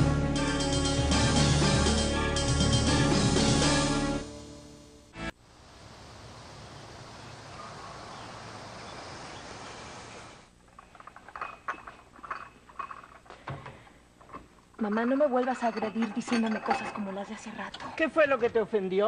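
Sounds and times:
outdoor ambience hiss: 0.0 - 19.0
china and glassware clinking: 10.7 - 13.3, 14.3 - 18.0.

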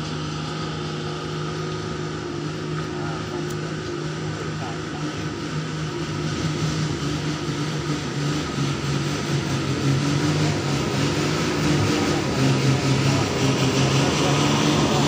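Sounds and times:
truck diesel engine running: 0.0 - 15.0.

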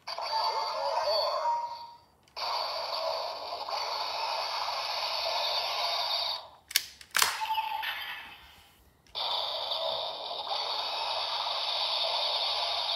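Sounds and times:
toy electronic sound effect: 0.0 - 6.5, 7.4 - 12.9
sharp plastic clicks: 6.7 - 7.5.

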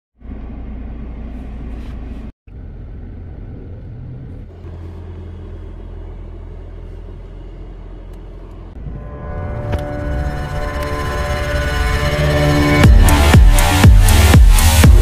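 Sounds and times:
car rumbling on dirt track: 0.2 - 8.9.

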